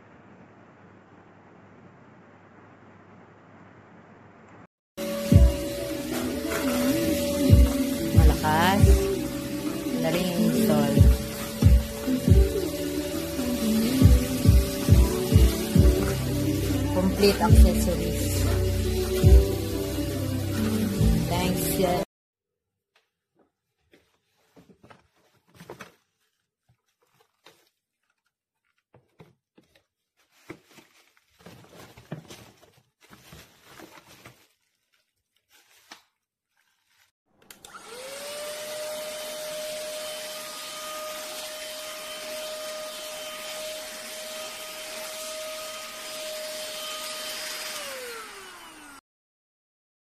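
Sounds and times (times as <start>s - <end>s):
handheld vacuum motor whine: 5.0s - 21.9s, 37.5s - 49.0s
plastic wrapping crinkling: 23.0s - 37.2s.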